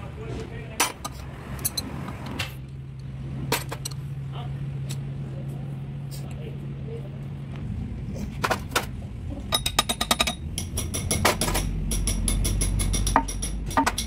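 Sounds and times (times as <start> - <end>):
tools tapping on metal: 9.5 - 14.0.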